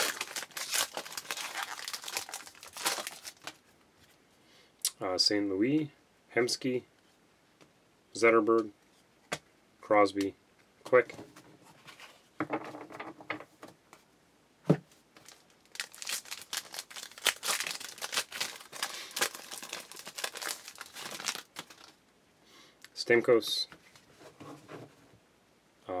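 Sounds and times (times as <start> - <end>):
foil wrapper crackling: 0.0 - 3.6, 15.2 - 22.0.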